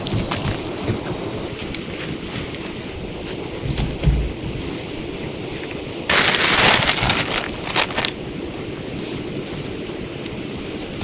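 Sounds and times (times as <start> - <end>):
heavy rain: 6.1 - 8.2
short crackles: 6.1 - 8.2.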